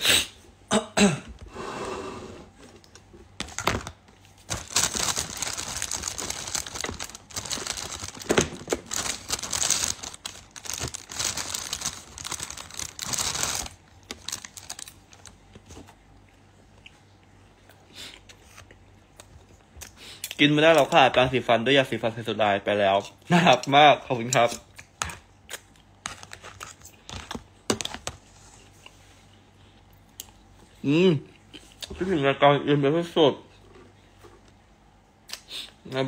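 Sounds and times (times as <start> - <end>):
crackling rustling handling noise: 2.6 - 16.3, 25.9 - 30.6.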